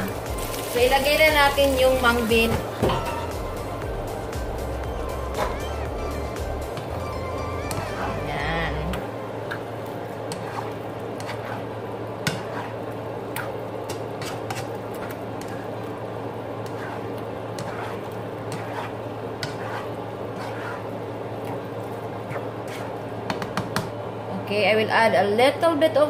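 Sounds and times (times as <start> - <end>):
food sizzling in a pan: 0.0 - 23.2
spoon scraping a pan: 10.3 - 12.8, 13.4 - 15.9, 16.6 - 23.0.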